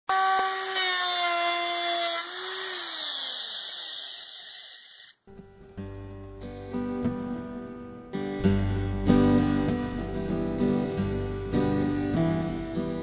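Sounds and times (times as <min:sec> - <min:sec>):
acoustic guitar music: 0:05.2 - 0:13.0.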